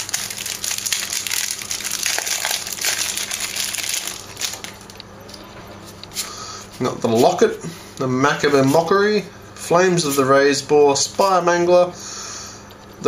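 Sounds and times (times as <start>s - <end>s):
plastic wrapping crinkling: 0.0s - 5.0s.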